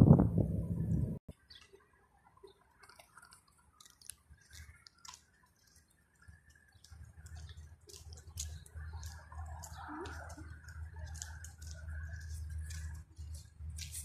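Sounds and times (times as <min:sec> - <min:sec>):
low microphone rumble: 0:00.0 - 0:01.2
footsteps crackling on dry ground: 0:01.3 - 0:14.0.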